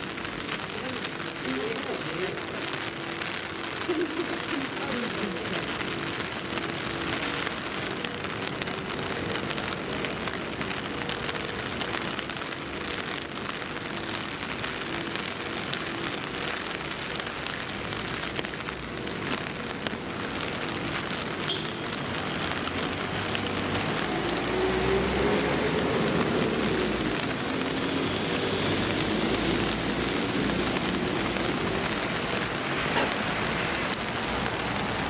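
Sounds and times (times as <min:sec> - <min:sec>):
heavy rain on pavement: 0:00.0 - 0:35.0.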